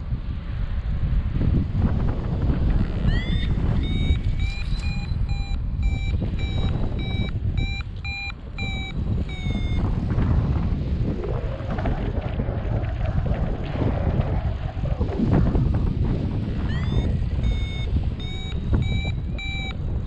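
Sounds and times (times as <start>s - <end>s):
wind rush on microphone: 0.0s - 20.0s
variometer beeping: 3.0s - 10.0s, 16.6s - 20.0s.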